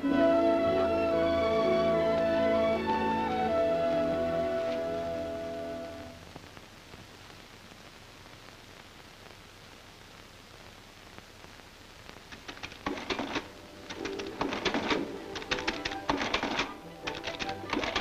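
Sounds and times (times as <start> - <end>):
background music: 0.0 - 6.3, 12.9 - 18.0
soundtrack hiss: 0.0 - 18.0
adding machine clacking: 12.5 - 18.0.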